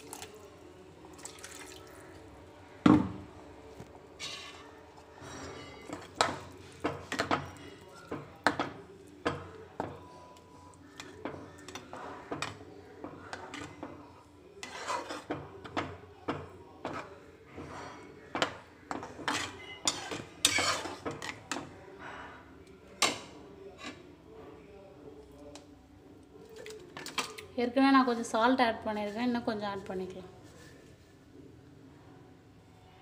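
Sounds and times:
spatula scraping a pan: 0:04.2 - 0:08.6, 0:10.9 - 0:22.2, 0:23.0 - 0:24.0.

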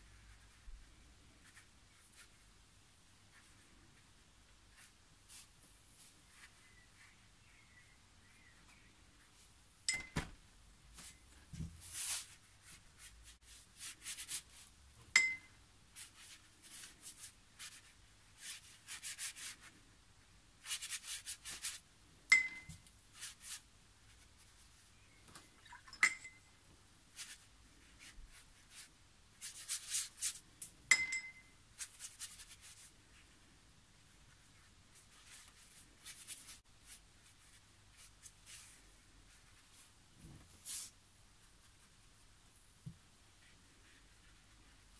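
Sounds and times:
paintbrush scrubbing on paper: 0:11.8 - 0:14.7, 0:20.6 - 0:21.8, 0:27.2 - 0:30.4, 0:40.6 - 0:41.0, 0:43.4 - 0:44.9.

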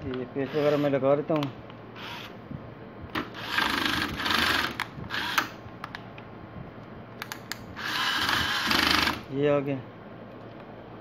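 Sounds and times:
electric screwdriver whirring: 0:02.0 - 0:02.3, 0:03.2 - 0:05.6, 0:07.8 - 0:09.2.

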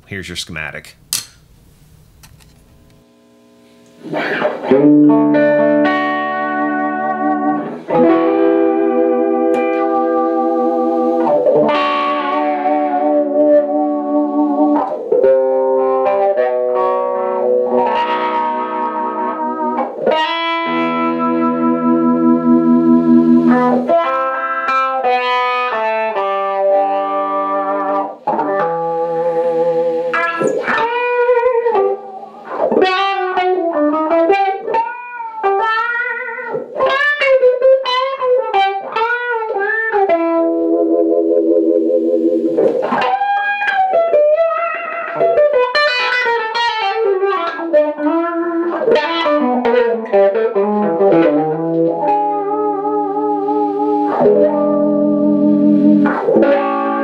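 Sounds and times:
electric guitar with wah pedal: 0:02.8 - 0:57.0.

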